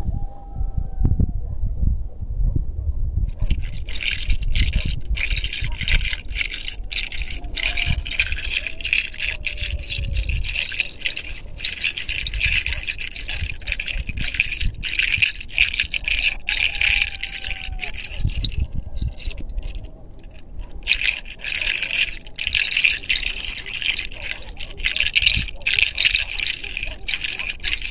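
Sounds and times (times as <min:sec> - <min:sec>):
wind rumbling on microphone: 0:00.0 - 0:27.9
roses rustling on hair and clothing: 0:03.4 - 0:27.9.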